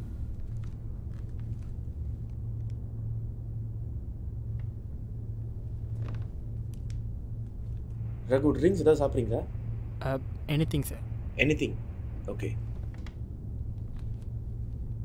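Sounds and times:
low rumbling room hum: 0:00.0 - 0:15.0
faint soft clicks: 0:06.0 - 0:07.6.

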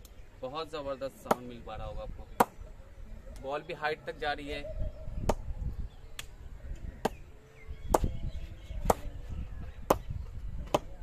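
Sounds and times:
cricket ball knocking on bat: 0:07.9 - 0:08.2, 0:09.8 - 0:11.0.

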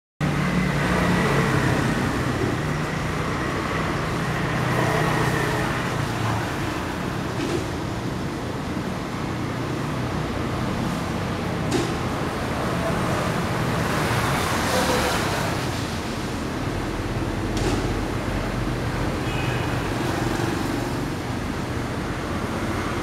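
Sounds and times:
vehicle engines humming: 0:00.2 - 0:23.0
traffic hiss on wet road: 0:12.5 - 0:17.4.

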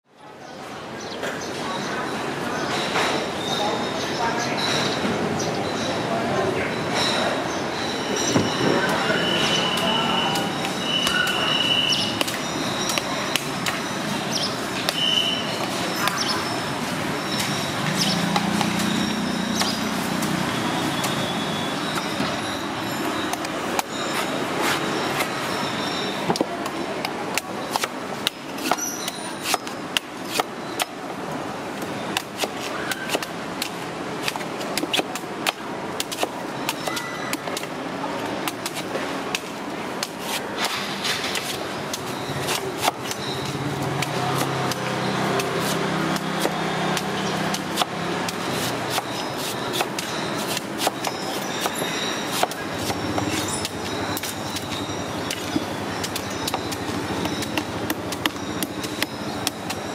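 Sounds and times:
knife chopping coconut husk: 0:09.7 - 0:16.3, 0:17.9 - 0:22.3, 0:26.3 - 0:31.0, 0:32.1 - 0:37.8, 0:38.4 - 0:59.9.

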